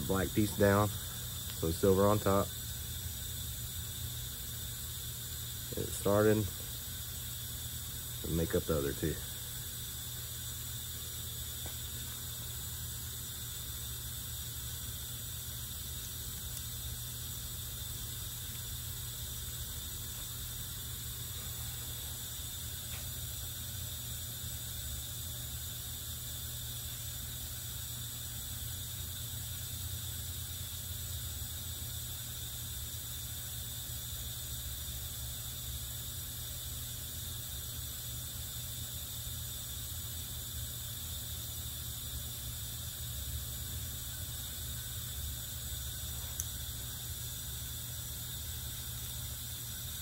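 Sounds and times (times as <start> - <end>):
room noise hum and hiss: 0.0 - 50.0
faint click: 46.2 - 46.6.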